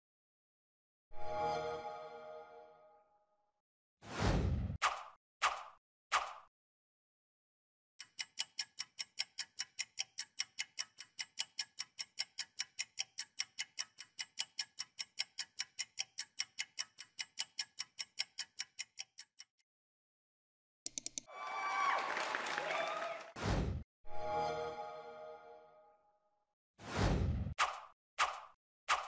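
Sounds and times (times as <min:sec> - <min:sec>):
clock ticking: 0:08.0 - 0:19.6, 0:20.9 - 0:21.3.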